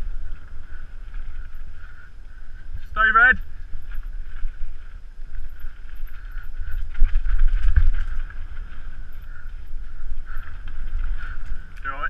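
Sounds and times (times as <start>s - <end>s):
bike rattling over ground: 0.0s - 12.0s
wind rumbling on microphone: 0.0s - 12.0s.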